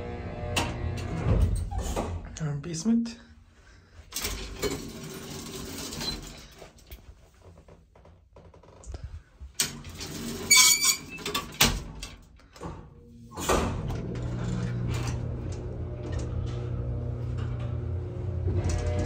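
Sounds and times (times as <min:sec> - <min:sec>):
elevator low hum: 0:13.0 - 0:19.0.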